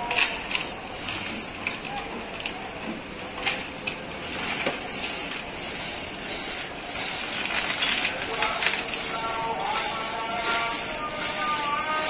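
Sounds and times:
steel chains clinking and rattling: 0:00.0 - 0:08.8.

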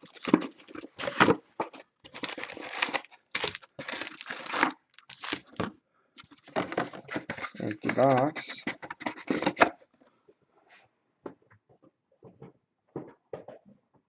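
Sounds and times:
plastic wrap and foil crinkling: 0:00.0 - 0:09.7.

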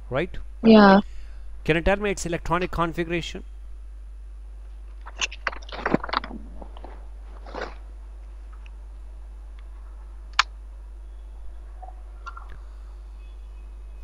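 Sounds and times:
low mains hum: 0:00.0 - 0:14.0
clicks and crackles: 0:04.6 - 0:07.8.

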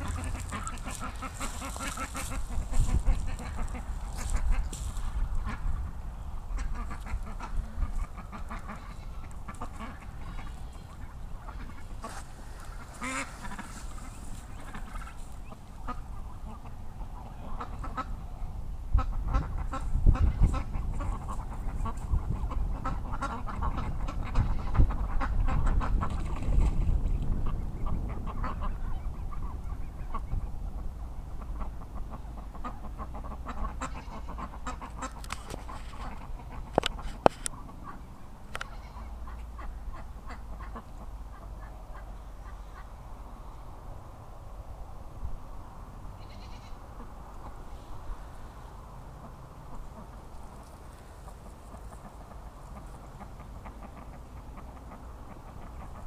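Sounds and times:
geese honking: 0:00.0 - 0:04.8, 0:06.5 - 0:18.2, 0:31.4 - 0:43.0, 0:46.2 - 0:47.6
low rumble: 0:00.0 - 0:06.8
ducks quacking: 0:00.0 - 0:18.2, 0:18.9 - 0:43.0, 0:46.2 - 0:47.8, 0:49.1 - 0:56.0.

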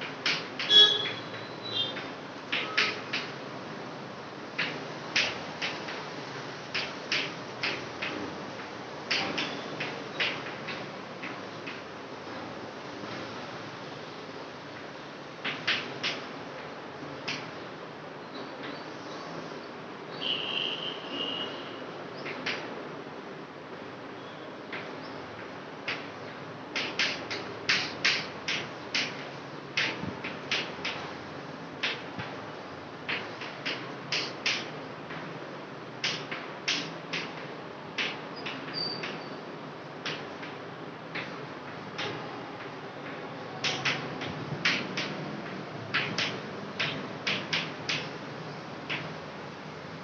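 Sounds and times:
chalk tapping and scratching on chalkboard: 0:26.8 - 0:31.2, 0:33.1 - 0:34.7, 0:43.6 - 0:48.2.

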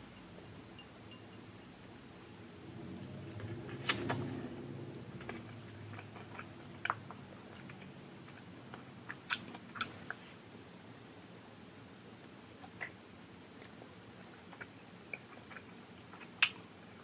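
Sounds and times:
close-up chewing: 0:03.2 - 0:10.3, 0:13.6 - 0:17.0
sharp wet clicks: 0:14.4 - 0:16.6.

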